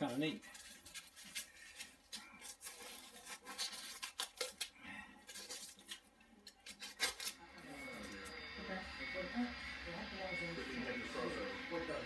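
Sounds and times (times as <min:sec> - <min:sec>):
knife scraping foam board: 0:00.5 - 0:04.6.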